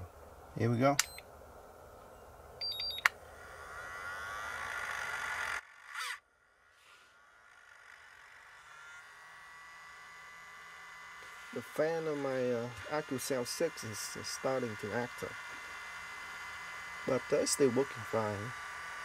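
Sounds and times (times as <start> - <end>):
person talking: 0.0 - 1.0, 11.6 - 15.4, 17.1 - 18.5
charger beeping: 1.0 - 1.3, 2.6 - 3.2
cooling fan whirring: 7.2 - 19.0.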